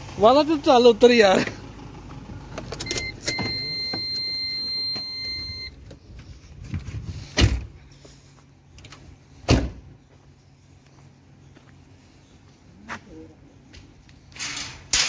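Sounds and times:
car warning chime: 2.8s - 5.8s
short beep: 2.8s - 5.8s
heavy thump: 6.8s - 7.8s, 9.4s - 9.9s
car door slamming: 7.4s - 7.7s, 9.4s - 9.8s.

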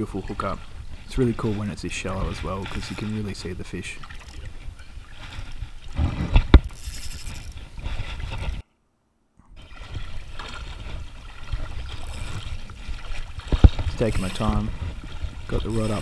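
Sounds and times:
water sloshing: 0.0s - 8.6s, 9.4s - 16.0s
wind rumble on microphone: 4.4s - 8.6s, 9.6s - 16.0s.

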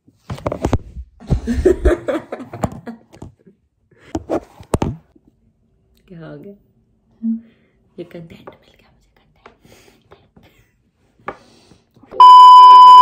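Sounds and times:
women giggling: 1.4s - 3.1s.

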